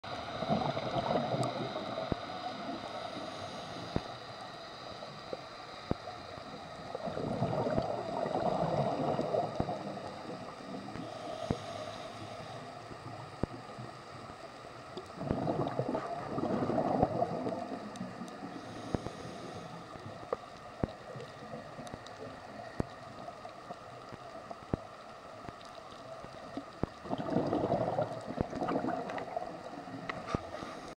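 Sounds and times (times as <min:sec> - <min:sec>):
exhaled bubbles gurgling: 0:00.0 - 0:04.0, 0:06.0 - 0:12.2, 0:14.9 - 0:20.2, 0:25.6 - 0:30.9
regulator inhalation hiss: 0:01.5 - 0:06.2, 0:10.2 - 0:13.2, 0:18.4 - 0:20.2.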